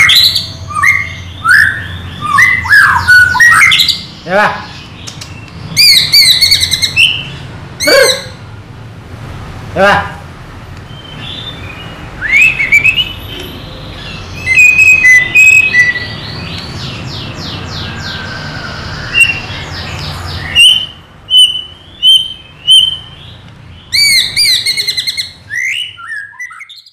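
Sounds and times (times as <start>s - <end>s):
bird singing whistles: 0.0s - 4.0s, 10.9s - 16.8s, 17.7s - 23.2s, 23.9s - 26.9s.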